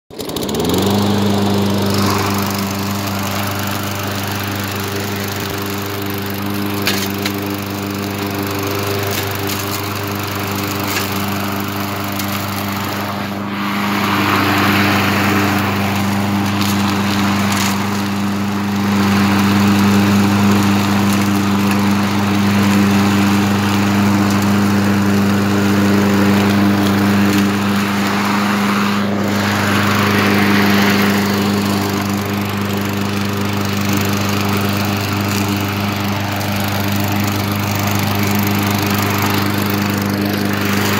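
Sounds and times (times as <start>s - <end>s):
lawn mower engine running: 0.1s - 40.9s.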